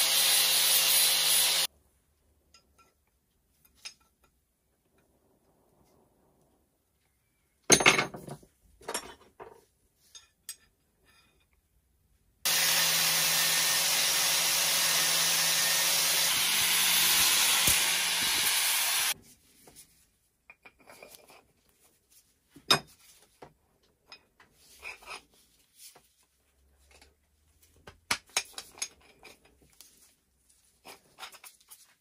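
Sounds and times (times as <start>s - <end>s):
bench grinder grinding metal: 0.0s - 1.7s, 12.5s - 19.2s.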